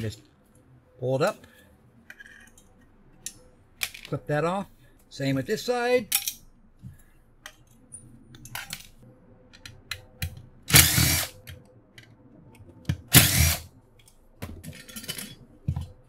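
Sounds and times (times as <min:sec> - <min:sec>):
cordless driver whirring: 0:10.7 - 0:11.3, 0:13.1 - 0:13.6
clatter of parts and tools: 0:14.0 - 0:16.0.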